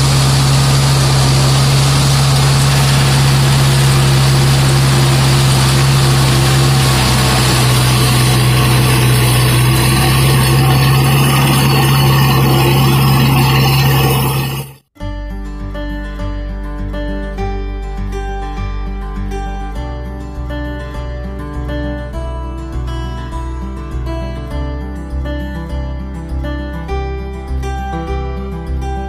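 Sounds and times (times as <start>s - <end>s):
rotavator churning soil: 0.0s - 14.8s
tractor diesel engine running: 0.0s - 14.8s
guitar music: 0.0s - 29.0s.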